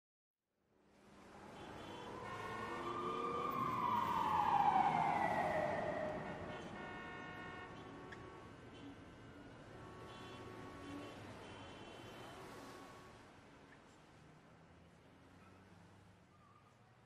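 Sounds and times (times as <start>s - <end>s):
siren wail: 1.7s - 8.2s.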